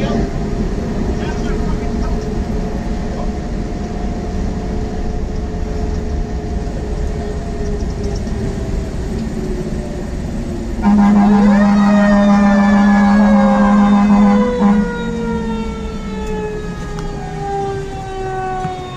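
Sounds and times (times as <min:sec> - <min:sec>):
fire engine engine and road noise: 0:00.0 - 0:18.9
loud horn blast: 0:10.8 - 0:18.9
siren winding up: 0:10.8 - 0:18.9.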